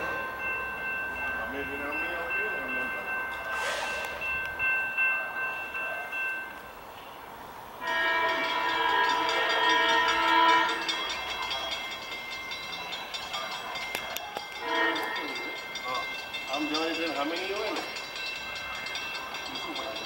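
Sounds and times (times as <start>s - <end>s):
train air horn blast: 3.5s - 4.1s, 7.8s - 11.0s, 14.6s - 15.2s.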